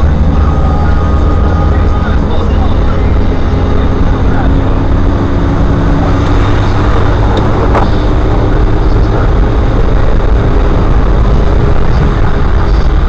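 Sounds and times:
car engine hum: 0.0 - 13.0
tyres on wet road: 0.0 - 13.0.

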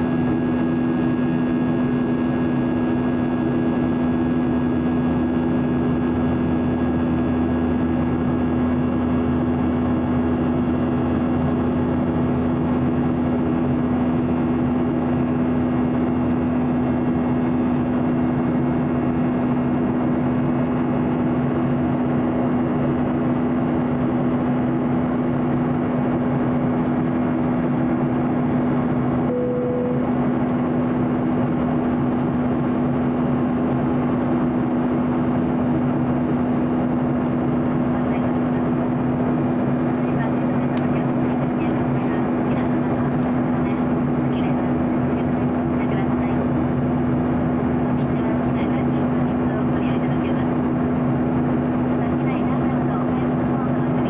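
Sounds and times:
constant low hum: 0.0 - 54.0
jet engines droning in cabin: 0.0 - 54.0
single beep: 29.3 - 30.2.

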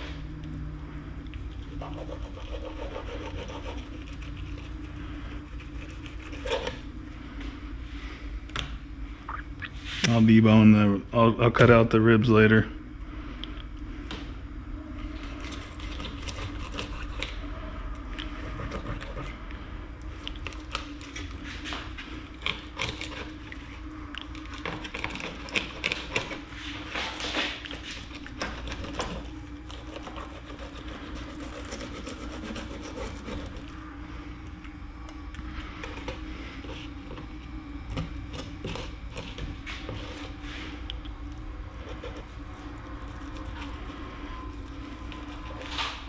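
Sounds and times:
steady low hum: 0.0 - 46.0
knife scraping fish on cutting board: 28.4 - 33.6.

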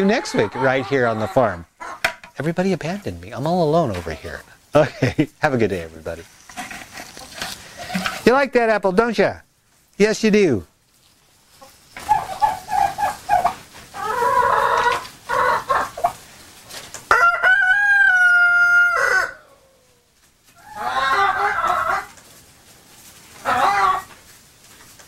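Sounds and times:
chickens clucking: 0.0 - 8.4, 11.1 - 25.0
rooster crowing: 17.1 - 19.7.

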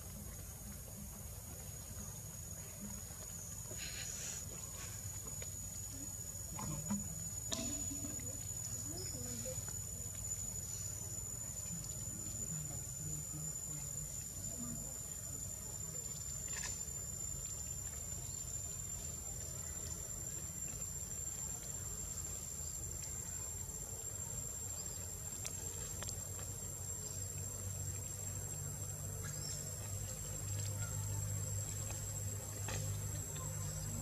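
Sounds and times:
high-pitched insect drone: 1.0 - 34.0
faint ticks: 24.5 - 34.0.

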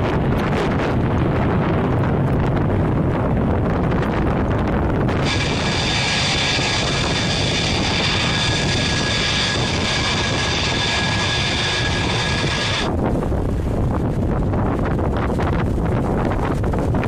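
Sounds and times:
rushing noise: 0.0 - 16.9
jet engines whining: 5.0 - 13.1.

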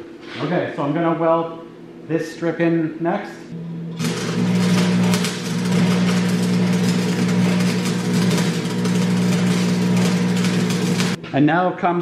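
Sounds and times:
welding arc crackling: 3.9 - 11.2.

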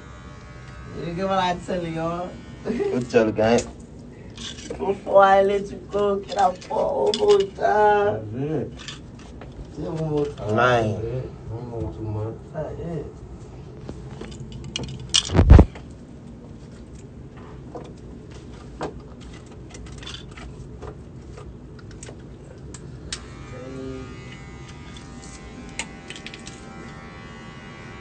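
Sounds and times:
electric hair clippers buzzing: 0.0 - 3.4, 23.0 - 28.0.

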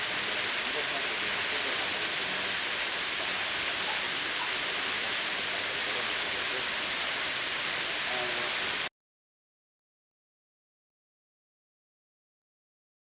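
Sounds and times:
rushing noise hiss: 0.0 - 8.9.

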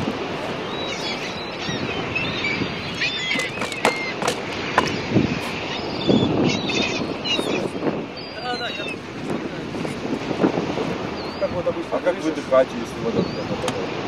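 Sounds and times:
small birds chirping: 0.0 - 10.0, 11.0 - 13.9
wind rushing over microphone: 0.0 - 14.0
rubber fins clicking and rustling: 3.3 - 5.0.

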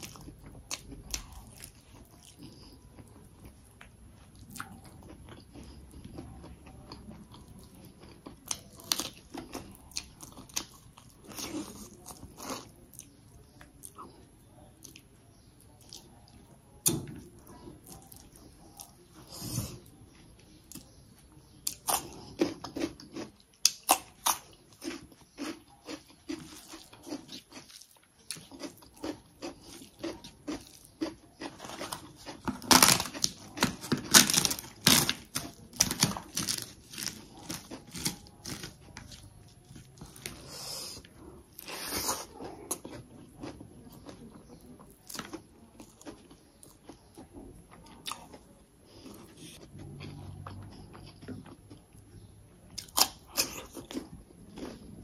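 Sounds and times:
chewing with wet mouth noises: 0.0 - 55.0
crisp flatbread snapping and crunching: 28.6 - 40.4.

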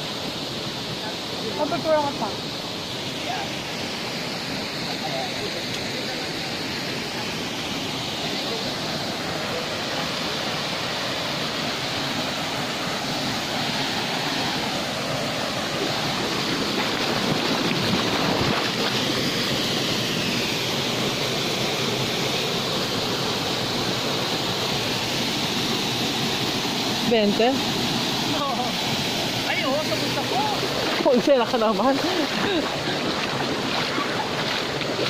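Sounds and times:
waterfall rushing: 0.0 - 35.0
water splashing around feet: 13.5 - 20.0, 27.1 - 35.0.

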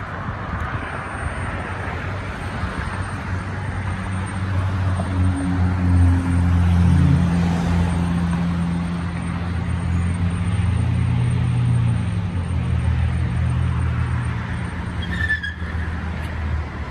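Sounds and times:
highway traffic hum: 0.0 - 16.9
brief high squeal: 15.0 - 15.7.

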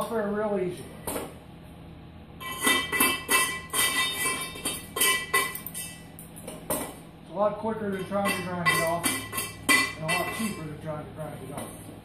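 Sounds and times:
chisel striking steel: 7.9 - 10.7.

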